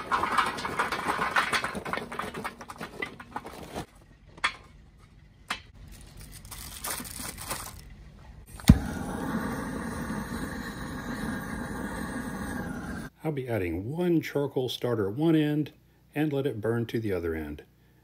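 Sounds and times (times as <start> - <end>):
charcoal pouring into metal basket: 0.0 - 3.8.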